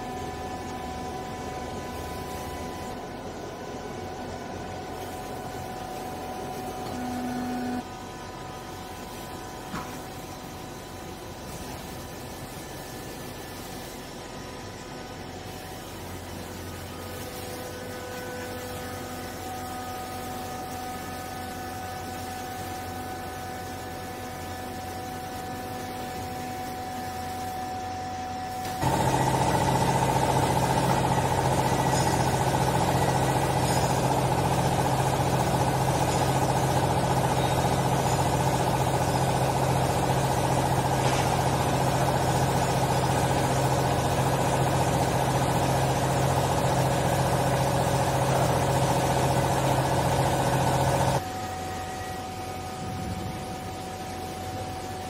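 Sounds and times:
hydraulic baler motor humming: 0.0 - 10.6, 17.9 - 51.6.

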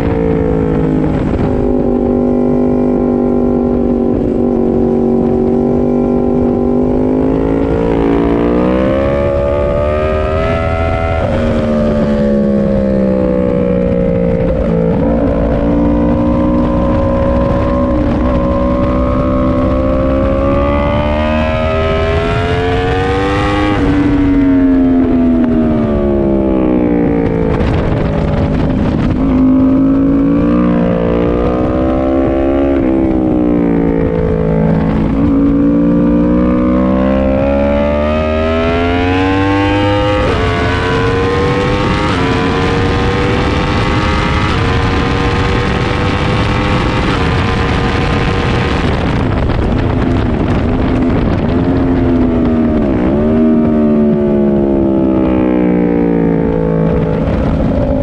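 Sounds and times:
motorcycle engine revving: 0.0 - 58.0
wind rush: 0.0 - 58.0.

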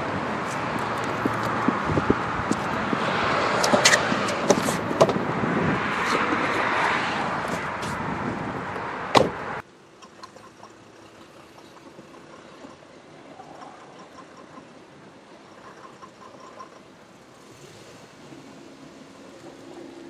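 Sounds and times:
outdoor noise: 0.0 - 20.0
car door shutting: 9.1 - 9.6.

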